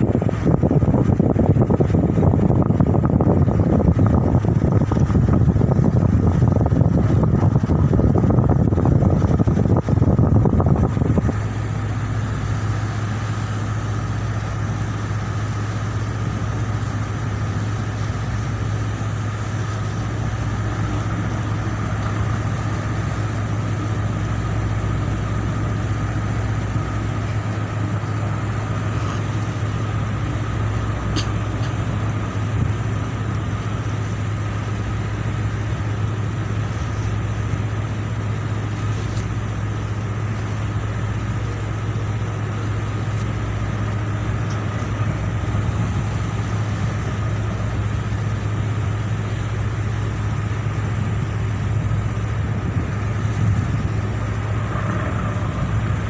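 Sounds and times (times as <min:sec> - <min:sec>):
ship diesel engine drone: 0:00.0 - 0:56.0.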